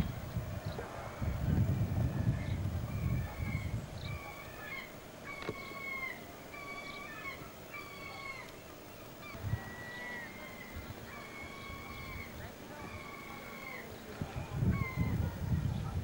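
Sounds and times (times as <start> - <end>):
wind on microphone: 0.0 - 4.4, 9.2 - 9.9, 10.6 - 13.0, 13.8 - 16.0
bird calling: 2.2 - 16.0.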